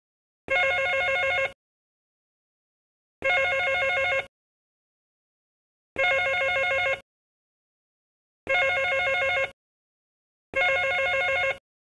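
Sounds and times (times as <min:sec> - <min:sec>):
telephone ringing: 0:00.5 - 0:01.6, 0:03.2 - 0:04.3, 0:06.0 - 0:07.0, 0:08.5 - 0:09.6, 0:10.6 - 0:11.6.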